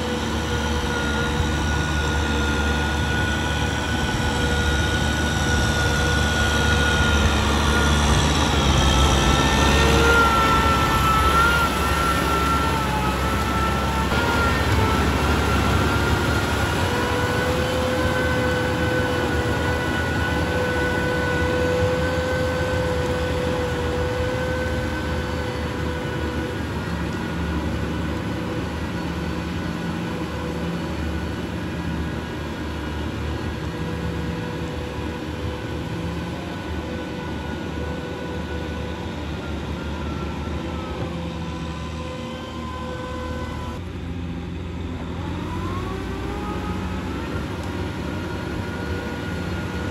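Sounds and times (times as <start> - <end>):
steady high whine: 0.0 - 49.9
tiller churning mud: 0.0 - 49.9
tractor diesel engine running: 0.0 - 49.9.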